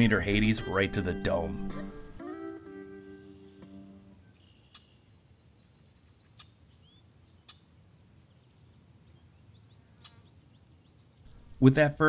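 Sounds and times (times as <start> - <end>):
high bird chirps: 4.2 - 5.3, 9.7 - 11.6.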